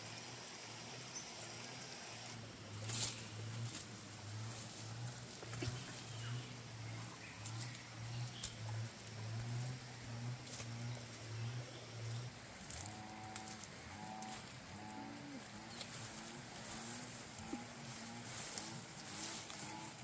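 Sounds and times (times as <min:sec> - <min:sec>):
low pulsing hum: 0:02.3 - 0:20.0
twigs clicking: 0:12.1 - 0:20.0
footsteps on rock and leaves: 0:12.2 - 0:20.0.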